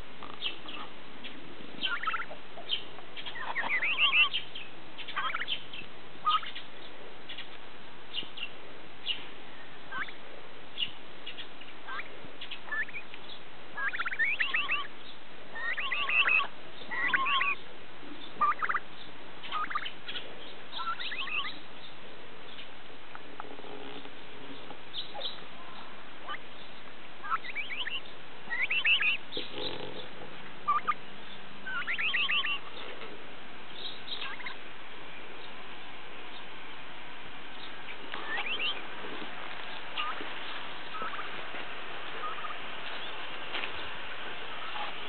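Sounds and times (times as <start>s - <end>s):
turkey hen peeping: 0.0s - 10.2s, 10.8s - 35.6s, 37.4s - 45.0s.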